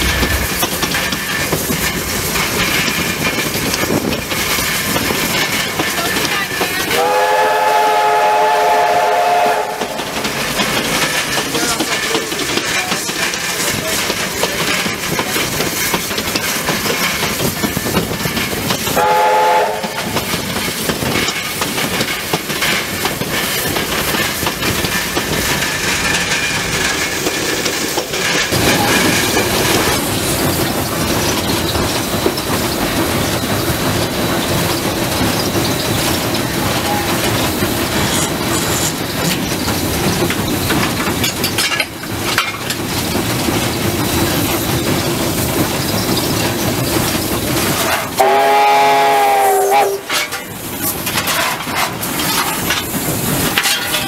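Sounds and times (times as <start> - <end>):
steam locomotive wheels clattering: 0.0 - 54.0
steam whistle blast: 7.0 - 9.9, 19.0 - 20.0, 47.8 - 50.2.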